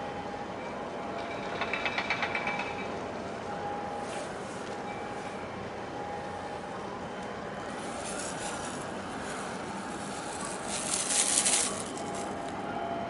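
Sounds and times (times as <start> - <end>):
ship engine drone: 3.0 - 13.0.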